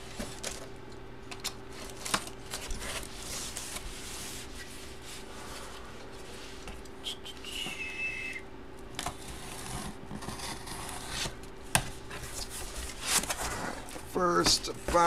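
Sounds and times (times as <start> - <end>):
cardboard box rubbing and scraping: 9.2 - 11.3.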